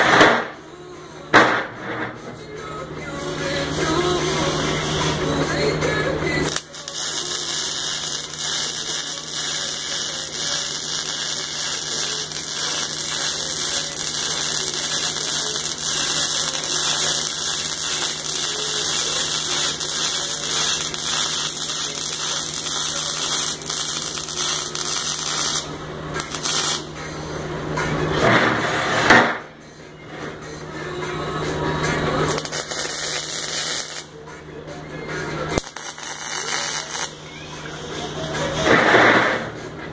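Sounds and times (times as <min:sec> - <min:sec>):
welding arc crackling and hissing: 0:03.9 - 0:05.3, 0:06.5 - 0:26.9, 0:32.3 - 0:34.1, 0:35.6 - 0:37.2.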